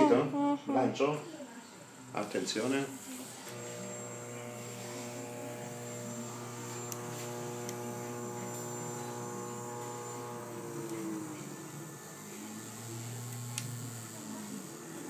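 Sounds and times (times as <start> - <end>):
stepper motors whining: 3.0 - 15.0.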